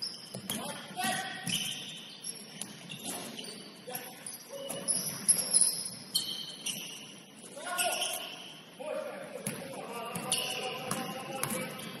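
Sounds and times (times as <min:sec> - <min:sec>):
shoes squeaking on gym floor: 0:00.0 - 0:08.6, 0:10.2 - 0:10.8
ball bouncing: 0:09.4 - 0:11.8.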